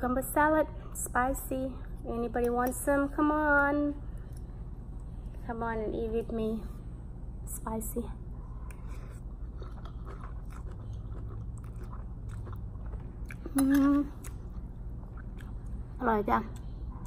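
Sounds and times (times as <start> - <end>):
close-up chewing noodles: 8.5 - 15.9.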